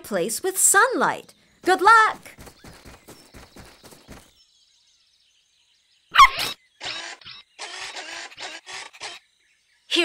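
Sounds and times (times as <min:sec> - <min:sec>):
cartoon pattering steps: 0:01.6 - 0:04.3
cartoon puppy bark: 0:06.1 - 0:06.6.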